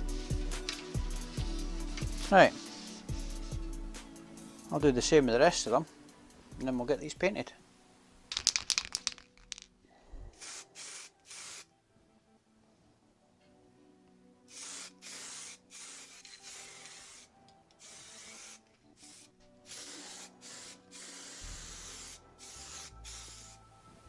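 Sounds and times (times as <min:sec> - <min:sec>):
aerosol spray can hissing: 0:00.0 - 0:04.8, 0:10.4 - 0:11.7, 0:14.5 - 0:23.6.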